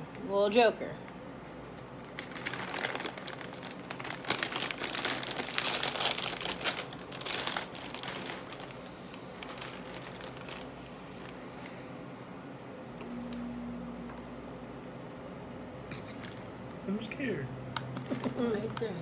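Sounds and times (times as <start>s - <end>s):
plastic bag crinkling: 2.0s - 11.7s.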